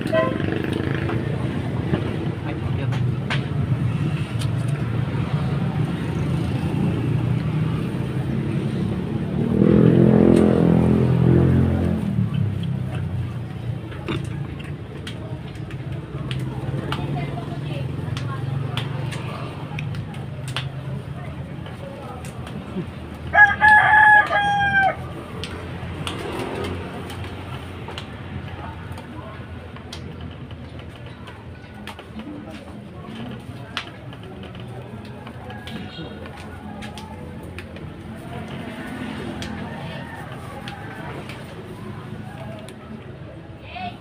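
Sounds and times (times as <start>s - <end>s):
motor vehicle engine passing: 0.0s - 14.9s, 21.7s - 29.3s, 34.0s - 43.3s
traffic engine rumble: 0.0s - 44.0s
rooster crowing: 23.3s - 25.0s.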